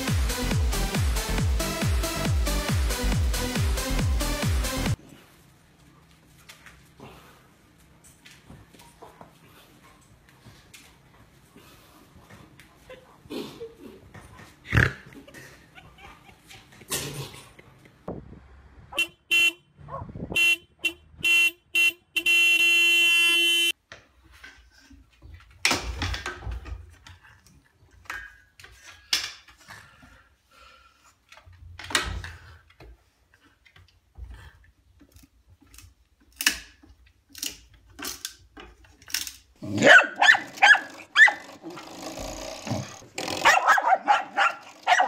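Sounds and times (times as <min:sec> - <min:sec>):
horn-like honking: 0:18.9 - 0:23.7.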